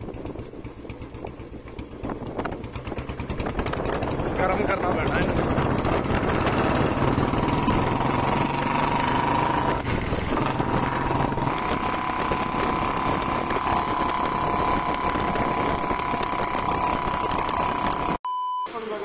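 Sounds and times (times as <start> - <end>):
motorcycle engine running: 0.0 - 18.2
wind and road noise: 0.0 - 18.2
man talking: 4.4 - 5.4.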